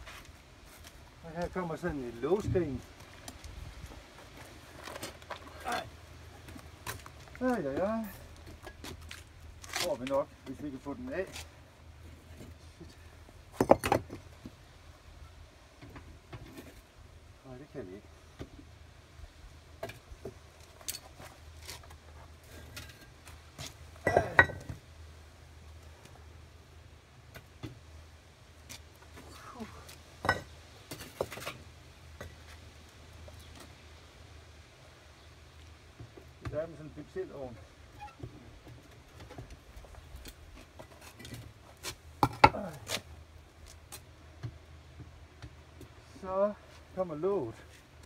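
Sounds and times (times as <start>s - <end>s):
bricks clattering: 13.6s - 14.2s.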